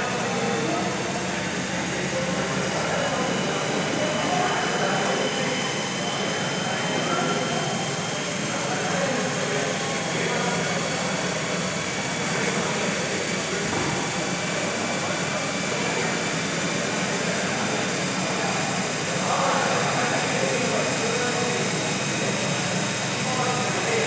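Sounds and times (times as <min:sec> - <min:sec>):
electric motor driving pump: 0:00.0 - 0:24.0.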